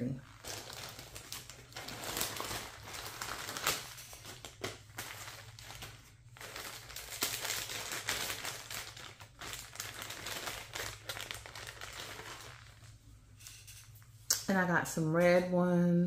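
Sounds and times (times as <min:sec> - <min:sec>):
plastic bags crinkling: 0:00.0 - 0:13.1.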